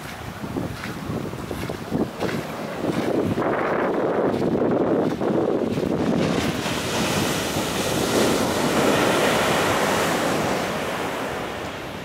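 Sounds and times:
wave breaking on shore: 0.0 - 12.0
foam washing up sand: 5.7 - 11.8.

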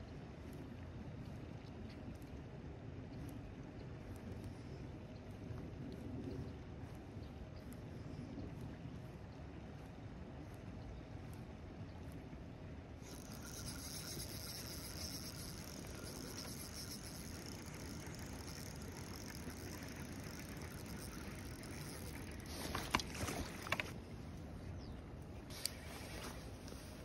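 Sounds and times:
wind and open water: 0.0 - 27.0
fishing reel whirring: 13.0 - 24.0, 25.5 - 26.4.

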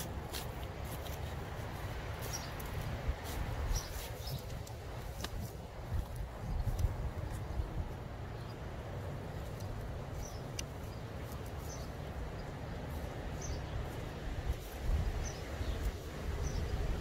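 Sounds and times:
wind rumbling on microphone: 0.0 - 17.0
bird chirping: 2.2 - 2.8, 3.7 - 4.6, 9.4 - 14.1, 15.1 - 16.9.

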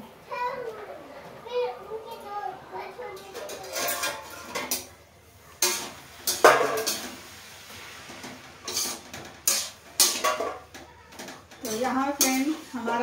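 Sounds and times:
metal spatula scraping a pan: 3.3 - 4.9, 5.6 - 13.0
sharp clanks of metal on pan: 3.3 - 4.9, 5.6 - 7.2, 8.1 - 13.0.

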